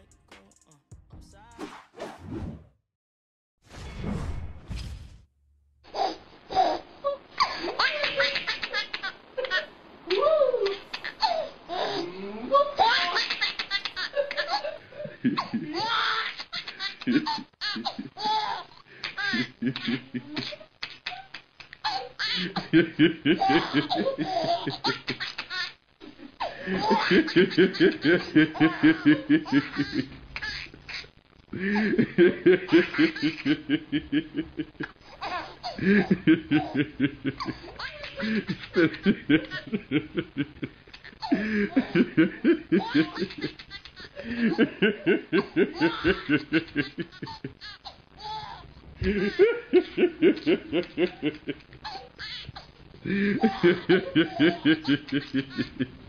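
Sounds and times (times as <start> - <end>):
man laughing hard: 31.6 - 34.9, 35.7 - 47.5, 49.0 - 51.6, 53.0 - 56.0.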